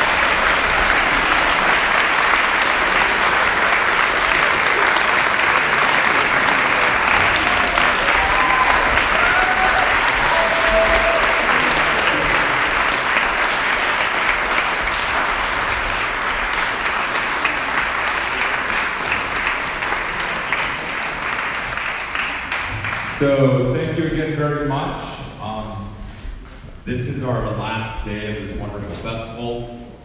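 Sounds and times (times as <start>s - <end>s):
audience applauding: 0.0s - 23.4s.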